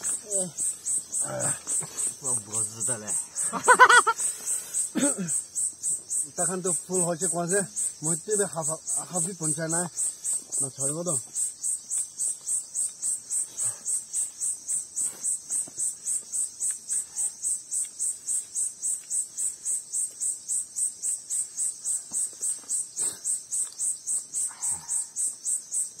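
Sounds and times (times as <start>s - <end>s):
cricket chirping: 0.0s - 26.0s.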